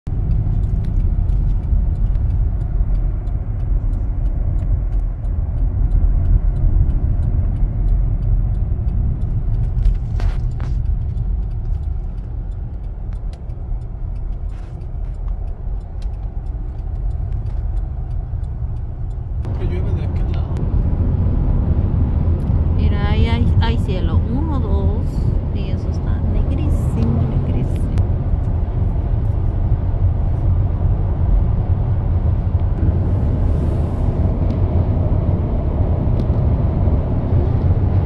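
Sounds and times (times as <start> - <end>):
car driving rumble: 0.0 - 38.0
faint ticks: 0.1 - 20.7.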